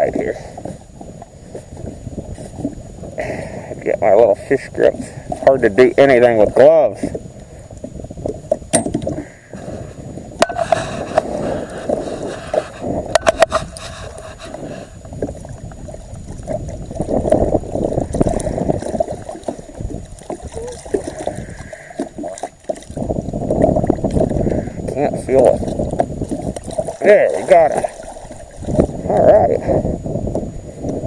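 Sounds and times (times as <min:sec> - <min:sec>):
water splashing and sloshing: 0:00.0 - 0:31.0
fish thrashing at surface: 0:25.5 - 0:29.2.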